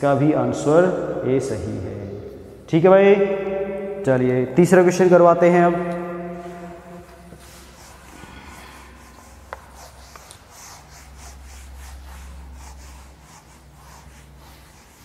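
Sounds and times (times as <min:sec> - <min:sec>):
steady low hum: 0:00.0 - 0:15.0
duster wiping a whiteboard: 0:05.8 - 0:15.0.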